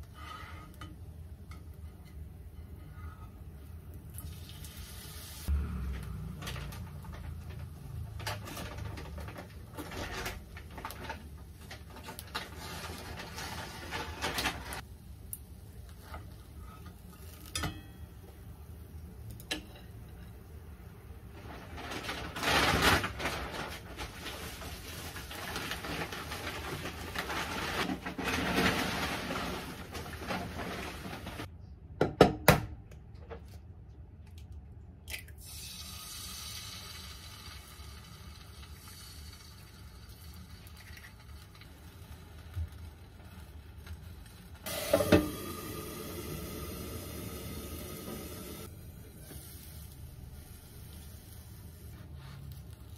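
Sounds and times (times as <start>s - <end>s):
cardboard and plastic rustling: 6.2s - 14.8s, 21.3s - 31.5s
egg sizzling in a frying pan: 35.4s - 52.0s.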